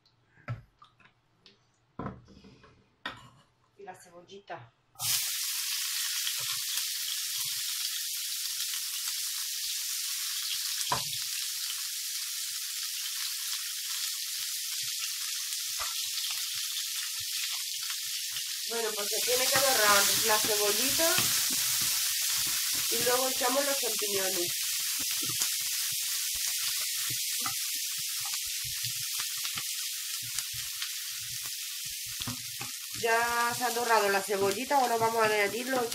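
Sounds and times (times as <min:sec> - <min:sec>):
onion sizzling in a frying pan: 0:05.0 - 0:35.9
spatula scraping and knocking pan: 0:19.3 - 0:23.6, 0:33.7 - 0:35.9.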